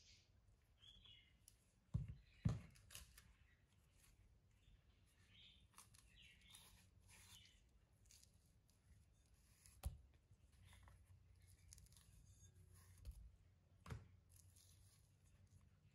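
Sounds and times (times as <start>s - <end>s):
banana peel rustling and crackling: 5.4s - 15.9s
bananas thumping on countertop: 13.8s - 14.1s.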